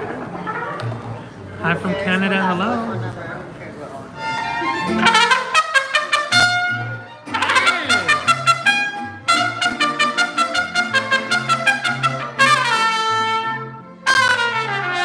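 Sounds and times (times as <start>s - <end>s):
mariachi band playing: 0.0s - 15.0s
trumpet playing quick notes: 4.7s - 15.0s.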